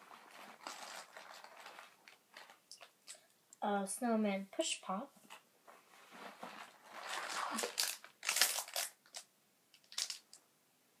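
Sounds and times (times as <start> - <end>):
plastic candy wrappers crinkling: 0.1 - 3.4, 6.5 - 10.4.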